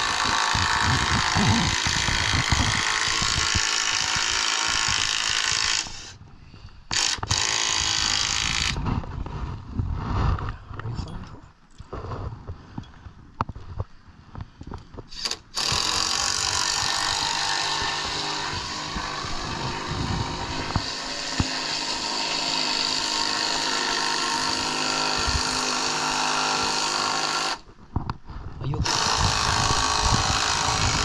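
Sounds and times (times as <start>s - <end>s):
small motor whirring: 0.0s - 6.2s, 15.1s - 27.6s.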